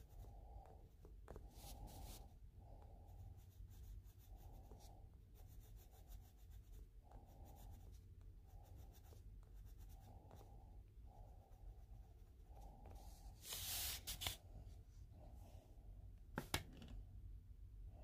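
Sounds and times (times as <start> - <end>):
colored pencil scratching on paper: 0.0 - 14.4.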